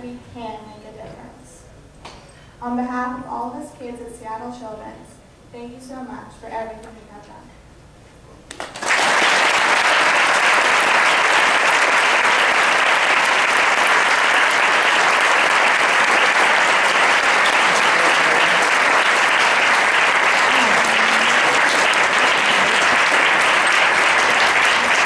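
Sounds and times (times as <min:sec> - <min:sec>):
audience applauding: 0:08.5 - 0:25.0.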